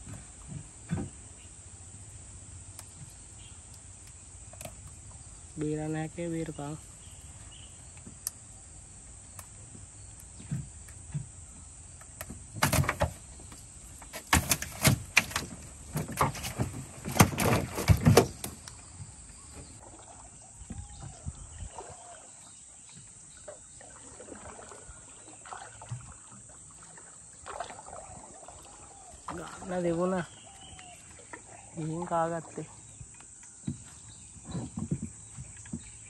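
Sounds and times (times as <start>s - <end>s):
weights knocking on hull: 12.2s - 19.8s, 33.6s - 36.0s
net splashing into water: 23.5s - 29.7s.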